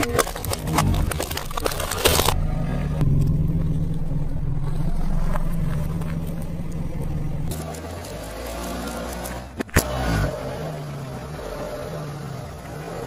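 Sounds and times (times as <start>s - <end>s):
plastic toy cracking under tyre: 0.0s - 2.4s
low car engine hum: 0.0s - 13.0s.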